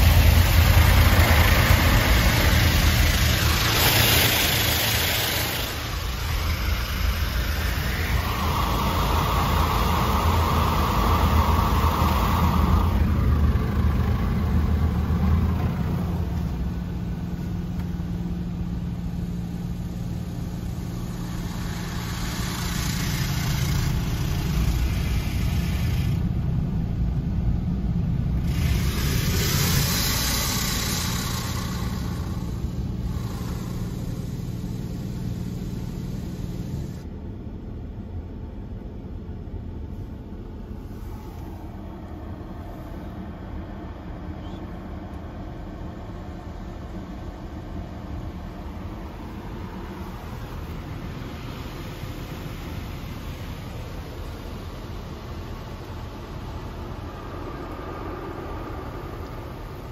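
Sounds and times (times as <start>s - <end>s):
water spray hissing on car: 0.0s - 16.5s, 19.7s - 26.4s, 28.4s - 37.0s
heavy machine rumble: 0.0s - 37.0s
car wash machine drone: 0.0s - 59.9s.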